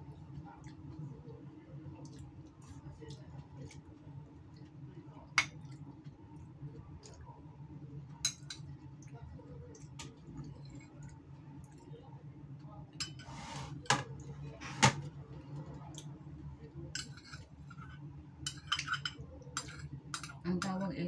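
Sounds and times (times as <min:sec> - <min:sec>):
cutlery clinking on plate: 0:18.5 - 0:20.4.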